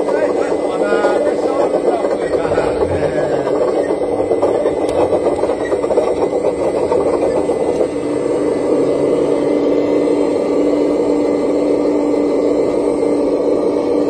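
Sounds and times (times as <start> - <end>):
model excavator motors whirring: 0.0 - 9.8
constant hum: 0.0 - 13.0.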